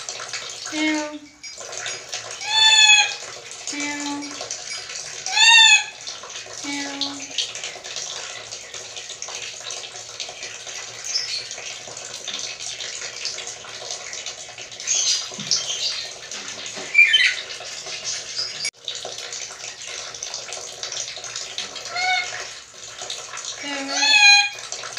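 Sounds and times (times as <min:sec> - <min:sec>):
parrot squeaky calls: 0:02.4 - 0:03.2, 0:05.3 - 0:06.0, 0:16.8 - 0:17.5, 0:21.9 - 0:22.4, 0:23.8 - 0:24.6.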